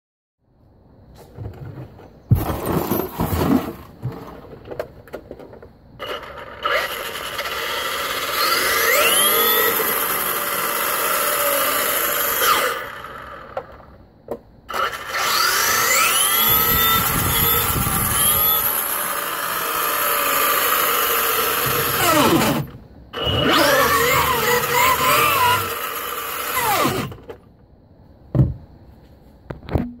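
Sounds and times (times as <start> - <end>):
electric motor whine revving: 6.0 - 13.6, 14.7 - 27.3.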